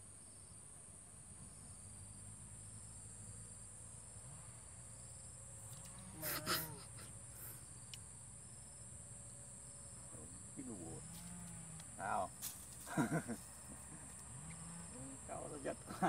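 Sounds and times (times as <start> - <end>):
crickets chirring: 0.0 - 16.0.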